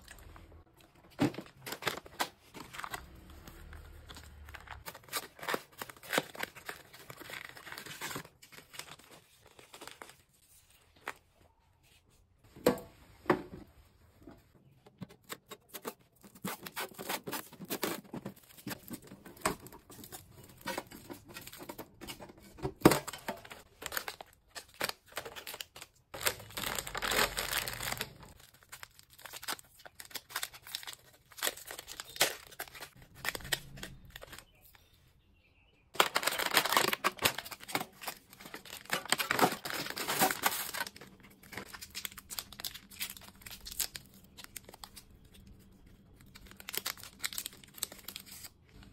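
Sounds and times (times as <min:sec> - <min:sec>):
packaging crinkling and rustling: 0:00.0 - 0:11.3, 0:15.2 - 0:34.8, 0:35.9 - 0:48.9
wrapping tearing: 0:23.8 - 0:34.6, 0:36.0 - 0:45.1, 0:46.2 - 0:48.6.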